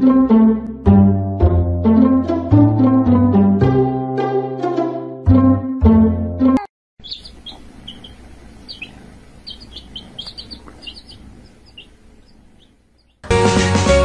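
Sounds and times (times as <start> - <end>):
low background rumble: 7.0 - 13.2
small animals chirping: 7.0 - 13.2.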